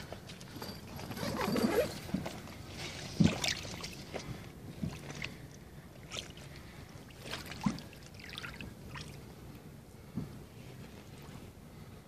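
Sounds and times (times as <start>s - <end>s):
water sloshing and splashing: 0.0s - 9.6s.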